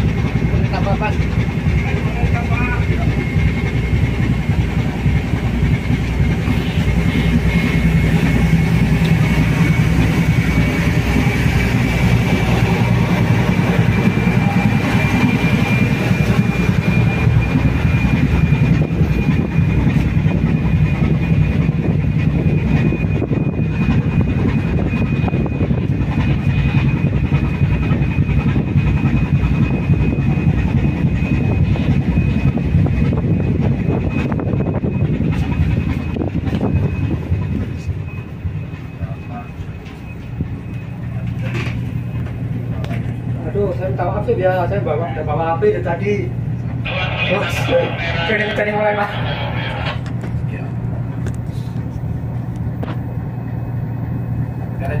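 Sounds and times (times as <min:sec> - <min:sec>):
ship engines low noise: 0:00.0 - 0:55.0
thin high whine: 0:46.6 - 0:50.7.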